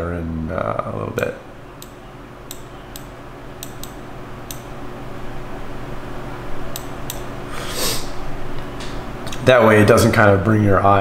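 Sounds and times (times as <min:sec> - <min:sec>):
computer room hum: 0:00.0 - 0:11.0
mouse clicks: 0:01.8 - 0:04.7, 0:06.7 - 0:07.3
short hiss: 0:07.5 - 0:08.2.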